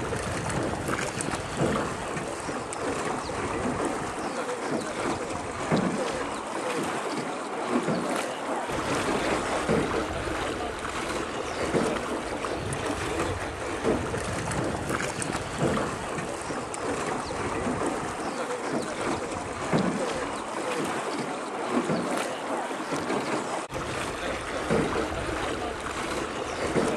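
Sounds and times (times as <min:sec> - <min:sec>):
wind noise on microphone: 0:00.0 - 0:04.2, 0:08.7 - 0:18.2
oar strokes in water: 0:00.0 - 0:26.9.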